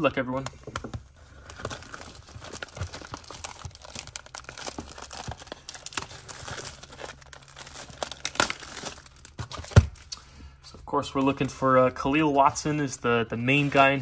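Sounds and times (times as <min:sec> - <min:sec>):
plastic wrap tearing and crinkling: 0:00.2 - 0:10.2, 0:13.5 - 0:14.0.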